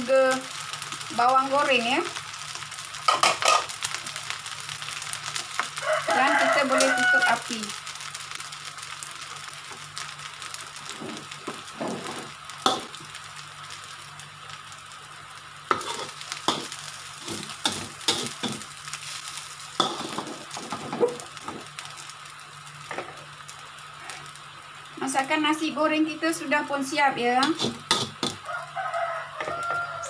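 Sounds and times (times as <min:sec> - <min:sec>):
light sizzle in a wok: 0:00.0 - 0:30.0
metal spatula scraping a wok: 0:10.9 - 0:13.0, 0:15.7 - 0:19.2, 0:19.8 - 0:21.6, 0:27.4 - 0:28.4.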